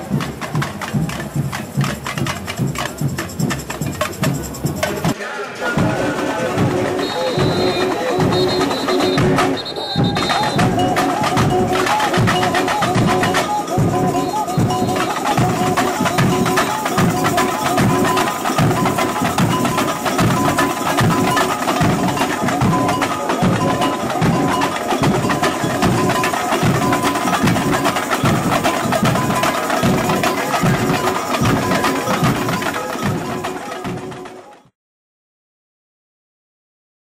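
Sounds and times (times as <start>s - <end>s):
higher drums: 0.0s - 34.7s
percussion bells: 0.0s - 34.8s
bass drums: 5.8s - 34.2s
melody: 6.7s - 34.5s.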